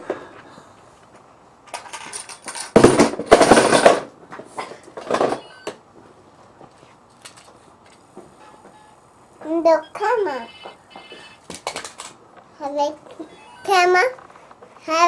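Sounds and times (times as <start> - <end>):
plastic toys rattling: 11.4 - 12.2.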